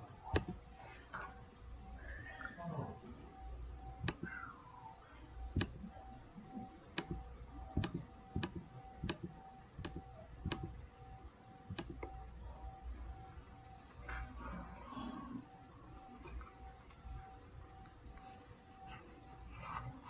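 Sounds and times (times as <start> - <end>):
computer mouse clicking: 0.3 - 0.6, 3.9 - 4.6, 5.4 - 10.8, 11.7 - 12.2.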